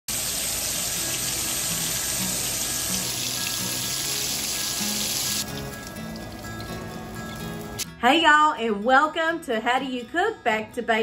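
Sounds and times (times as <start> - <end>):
steaks sizzling in a frying pan: 0.1 - 5.4
background music: 0.6 - 11.0.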